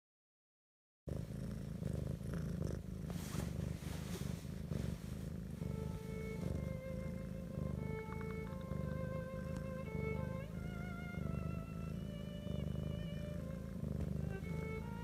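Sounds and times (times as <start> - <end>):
cat purring: 1.1 - 15.0
faint violin music: 4.1 - 15.0.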